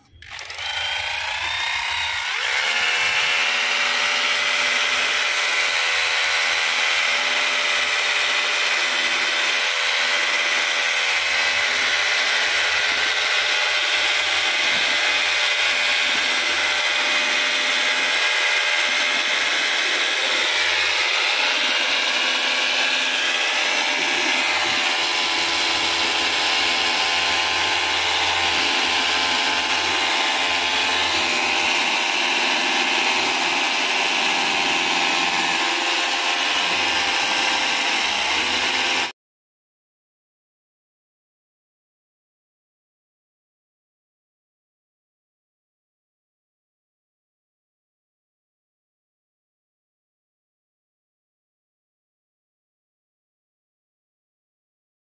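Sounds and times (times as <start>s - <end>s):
power tool motor whining: 0.0s - 39.1s.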